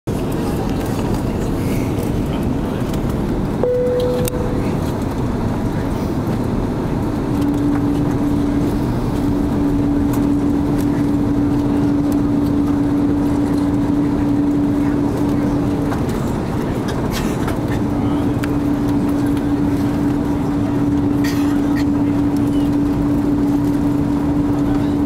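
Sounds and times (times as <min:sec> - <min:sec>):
airliner cabin roar: 0:00.1 - 0:25.0
steady low whine: 0:00.2 - 0:16.7
brief higher tone: 0:03.6 - 0:05.0.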